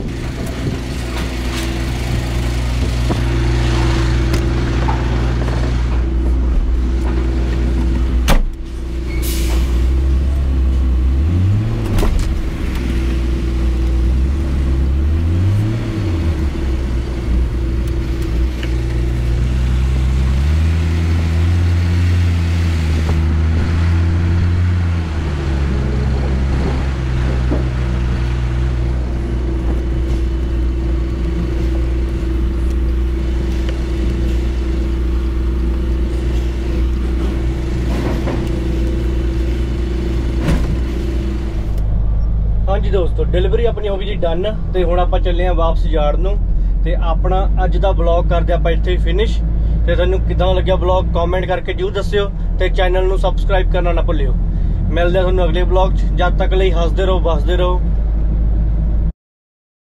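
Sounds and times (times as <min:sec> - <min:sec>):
lorry diesel engine revving: 0:00.0 - 0:59.1.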